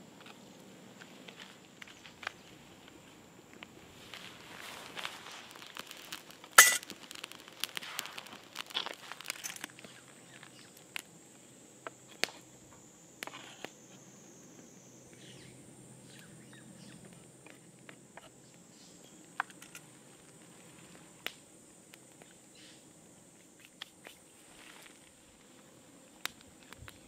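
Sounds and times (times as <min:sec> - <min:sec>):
rustling and crackling: 0:01.0 - 0:11.2.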